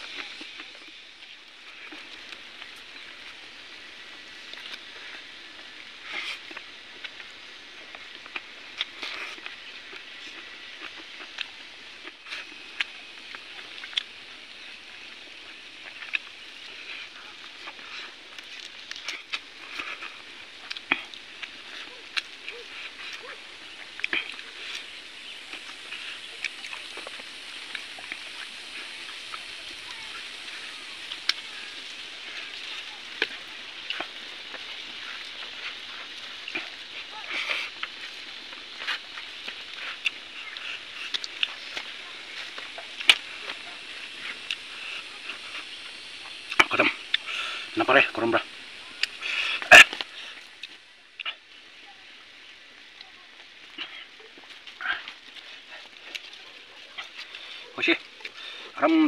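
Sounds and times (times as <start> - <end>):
chewing and lip smacking: 0.0 - 51.5, 52.9 - 58.8
steady outdoor hiss: 0.0 - 59.0.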